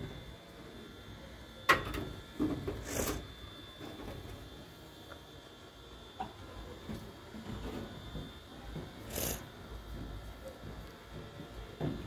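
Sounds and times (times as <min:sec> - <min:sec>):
short scraping hiss: 0:09.1 - 0:09.4.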